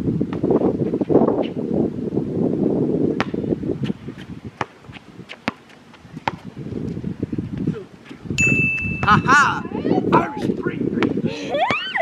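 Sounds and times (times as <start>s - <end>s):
wind buffeting microphone: 0.0s - 12.0s
basketball bouncing on hard court: 3.2s - 3.4s, 4.2s - 6.5s
steady high beep: 8.4s - 9.6s.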